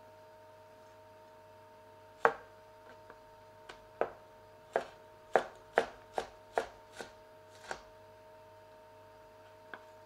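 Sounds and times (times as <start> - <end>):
cleaver chopping on plastic board: 2.2 - 2.5, 3.7 - 7.9.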